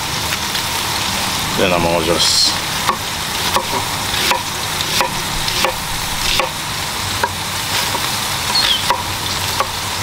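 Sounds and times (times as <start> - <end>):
meat sizzling on grill: 0.0 - 10.0
knife chopping on wooden board: 2.9 - 6.6, 8.8 - 9.8.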